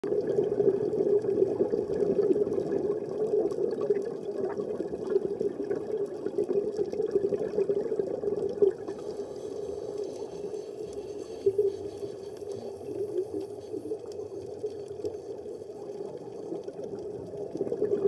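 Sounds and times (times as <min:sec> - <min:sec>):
underwater bubbles gurgling: 0:00.0 - 0:18.0.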